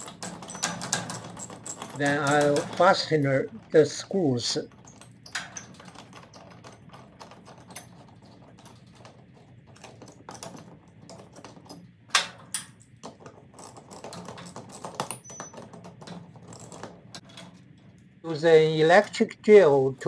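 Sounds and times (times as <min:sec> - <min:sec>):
metal wrench clicking and clinking: 0:00.0 - 0:02.9.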